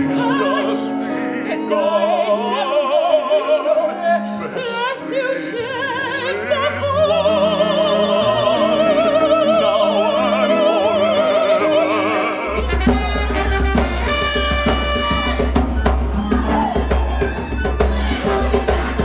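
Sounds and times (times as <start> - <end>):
soprano singing with vibrato: 0.0 - 12.8
orchestra playing: 0.0 - 19.0
lively music with drums and bass: 12.5 - 19.0.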